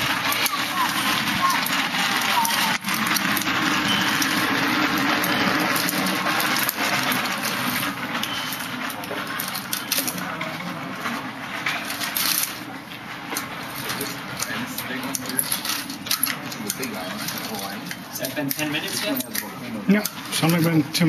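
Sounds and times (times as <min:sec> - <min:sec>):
walker scraping on concrete: 0:00.0 - 0:21.0.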